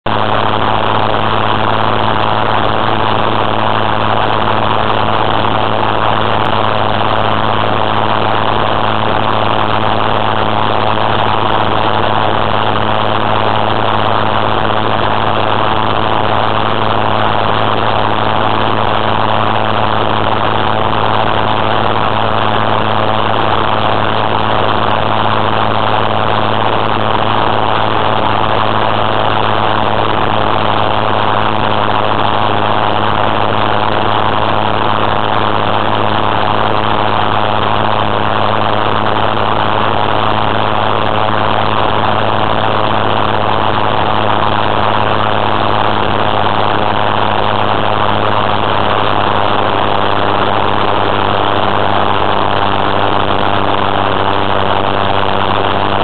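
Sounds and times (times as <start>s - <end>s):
engine and propeller humming: 0.2s - 47.9s.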